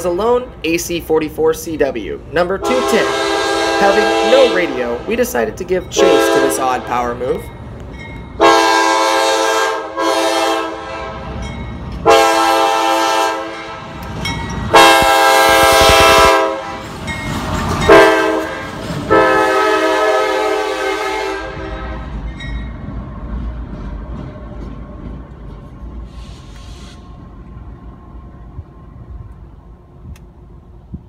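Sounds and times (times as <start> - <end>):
locomotive air horn blasts: 2.6 - 5.1, 6.0 - 6.9, 8.4 - 11.3, 12.0 - 14.0, 14.7 - 16.8, 17.9 - 22.1.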